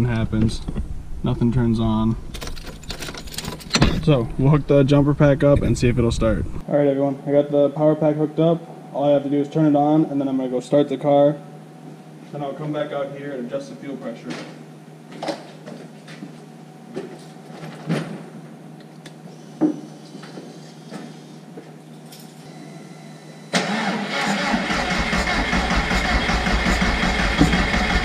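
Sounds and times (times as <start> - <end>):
car engine starting and running: 23.5 - 28.0.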